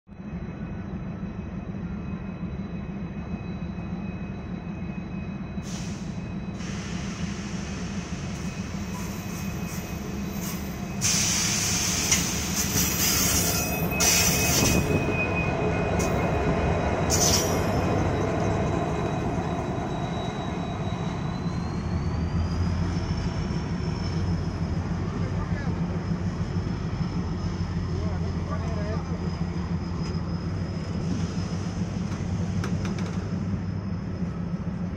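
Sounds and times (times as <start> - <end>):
locomotive engine rumble: 0.2 - 34.9
train coaches rolling past: 0.2 - 34.9
high-pitched wheel squeal: 8.2 - 34.6.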